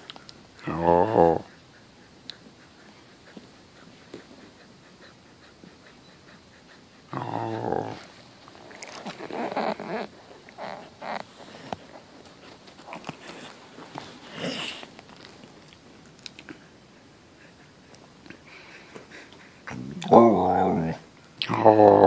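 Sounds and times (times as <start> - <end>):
dog low vocal sound: 0.0 - 15.0, 19.4 - 22.0
dog sniffing: 1.2 - 19.8.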